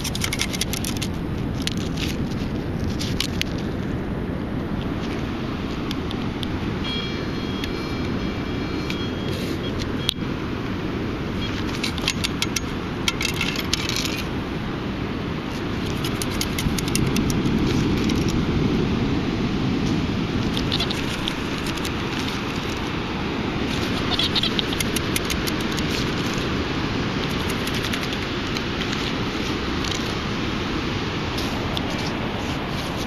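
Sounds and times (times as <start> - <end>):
sand rattling in metal scoop: 0.0 - 2.2, 15.8 - 18.4
low rush: 13.9 - 33.0.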